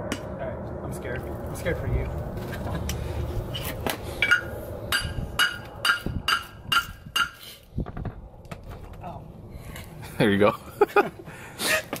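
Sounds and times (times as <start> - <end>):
hammer striking metal: 4.2 - 7.4.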